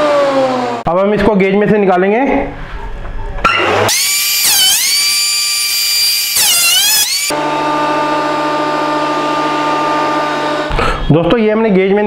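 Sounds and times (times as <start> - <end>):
jointer-planer motor whining: 3.5 - 10.2.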